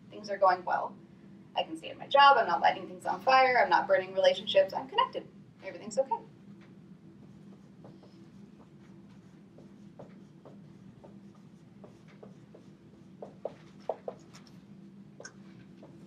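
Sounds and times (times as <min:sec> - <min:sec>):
low room hum: 0:00.0 - 0:16.0
marker squeaking on whiteboard: 0:07.3 - 0:14.5.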